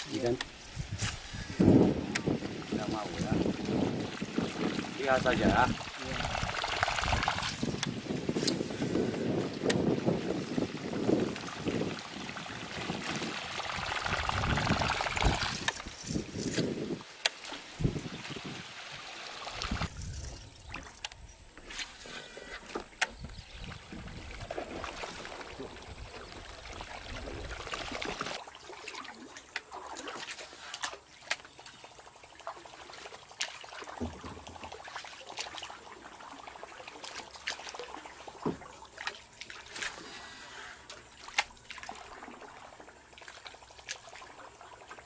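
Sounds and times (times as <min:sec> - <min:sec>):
water trickling and splashing: 0:00.0 - 0:45.0
paddle knocking against hull: 0:33.8 - 0:35.0, 0:38.3 - 0:39.0.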